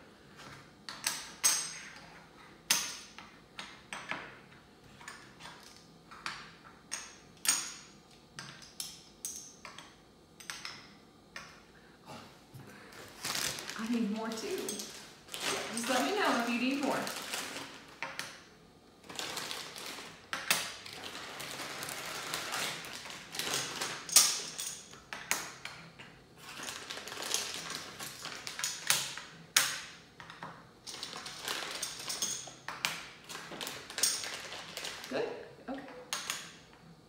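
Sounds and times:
plastic bag crinkling: 13.0 - 18.0, 19.0 - 24.1, 26.4 - 28.6, 30.9 - 32.1, 33.2 - 35.2.

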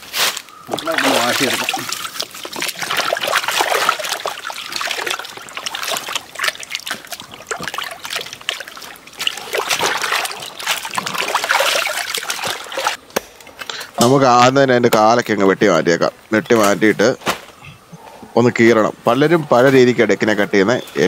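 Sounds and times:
water splashing in a plastic tub: 0.7 - 13.0.

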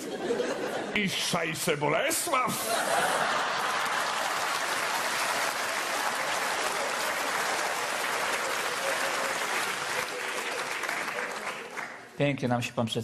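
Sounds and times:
audience applauding: 2.3 - 12.2.

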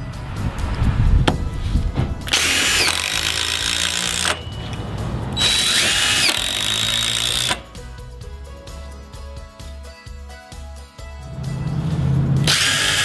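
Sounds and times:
cordless driver driving bolts: 2.2 - 7.8, 12.5 - 13.0.

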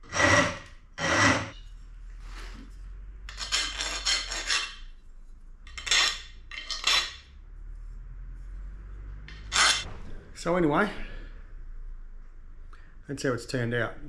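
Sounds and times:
steel parts clinking in vise: 5.7 - 7.3, 9.3 - 9.9.

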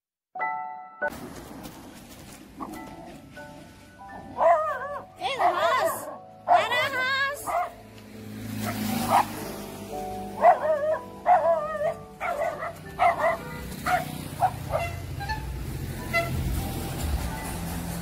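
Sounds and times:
background music: 0.4 - 1.1, 2.6 - 18.0
puppy yapping: 10.4 - 15.5.

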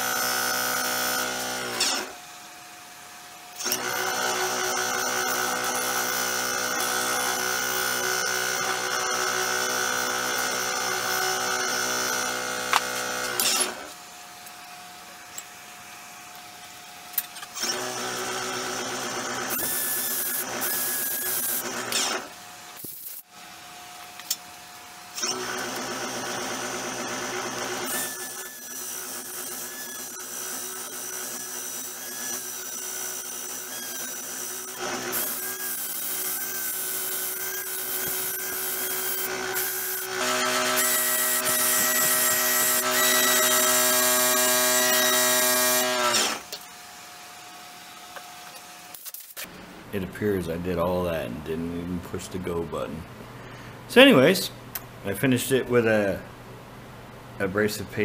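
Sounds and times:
wood lathe motor humming and whining: 3.6 - 13.9, 17.6 - 22.4, 25.2 - 48.4.

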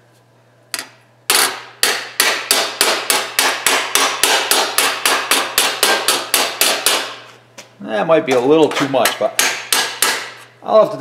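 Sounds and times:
hammer ringing on sheet metal: 1.8 - 7.2, 9.0 - 10.4.

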